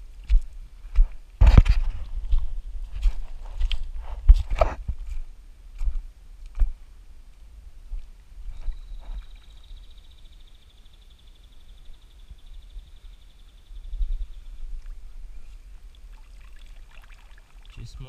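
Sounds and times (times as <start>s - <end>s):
footsteps on stones and gravel: 0.2s - 6.8s, 7.9s - 9.4s.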